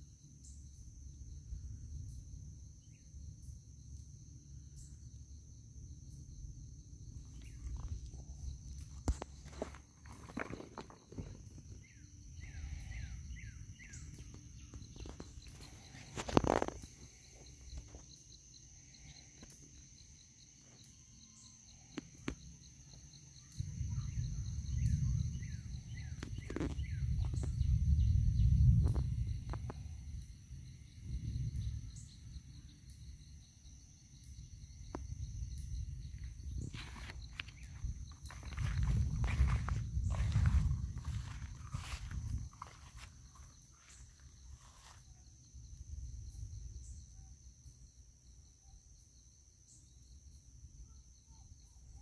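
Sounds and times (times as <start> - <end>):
crickets trilling: 0.0 - 52.0
low rumbling on microphone: 35.4 - 43.6.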